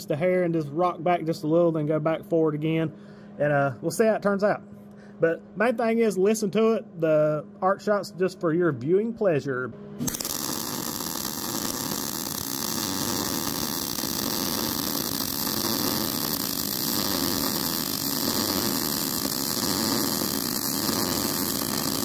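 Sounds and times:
welder arc buzzing sizzle: 10.0 - 22.0.

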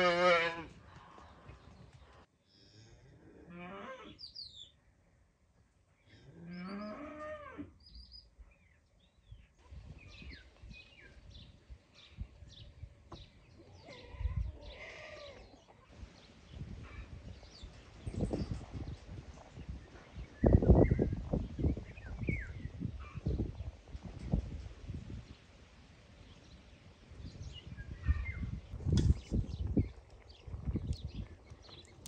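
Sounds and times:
small birds chirping: 4.1 - 4.9, 7.8 - 24.5, 25.1 - 32.0.

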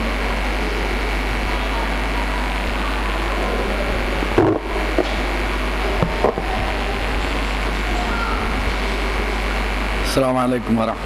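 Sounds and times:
microphone hiss and hum: 0.0 - 11.0
microphone handling thumps: 4.3 - 6.8.

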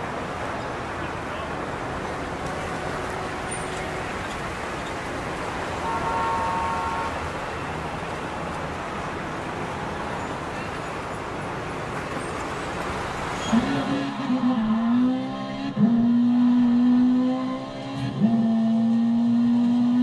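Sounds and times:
road traffic noise: 0.0 - 20.0
horn toot: 5.8 - 7.2.

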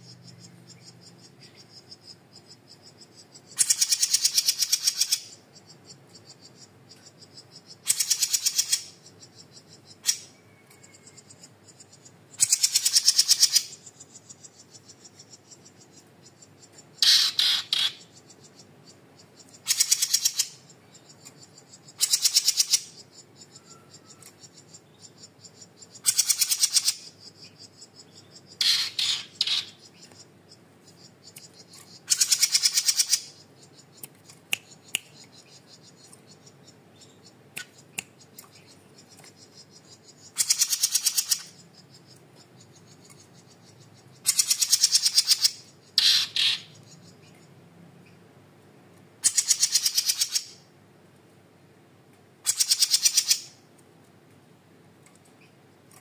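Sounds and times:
songbird chattering trills: 0.0 - 48.3, 49.2 - 50.7, 52.4 - 53.7
faint clicks: 55.0 - 56.0.

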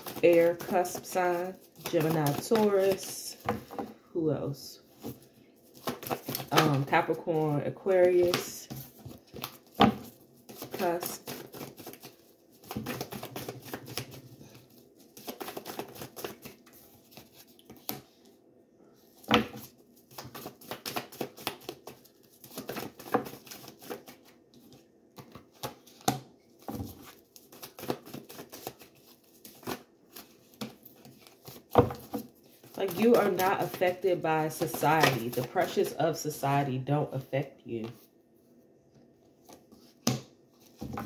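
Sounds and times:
cards shuffling: 0.0 - 3.9, 4.9 - 18.2, 19.4 - 35.9
cards slapping: 5.7 - 7.0, 8.1 - 14.2, 15.0 - 18.1, 19.3 - 35.9.

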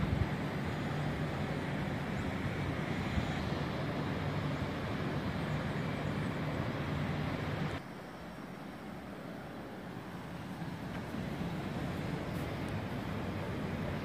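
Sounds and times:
distant city traffic rumble: 0.0 - 14.0.

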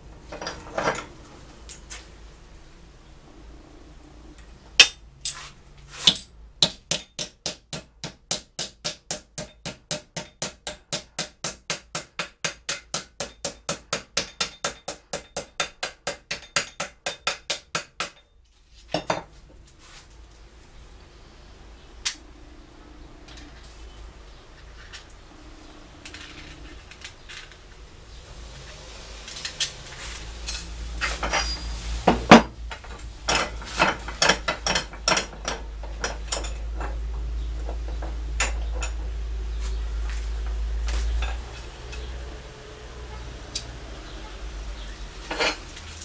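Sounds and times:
hammer striking steel punch: 6.0 - 18.2.

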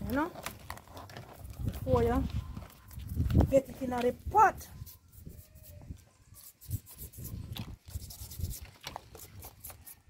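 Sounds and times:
toothbrush scrubbing crab shell: 4.8 - 10.0.

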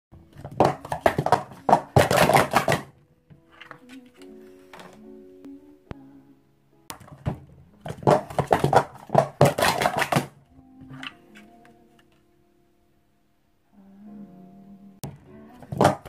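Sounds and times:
plastic cups clattering: 0.3 - 3.0, 6.9 - 11.2, 15.6 - 16.0.

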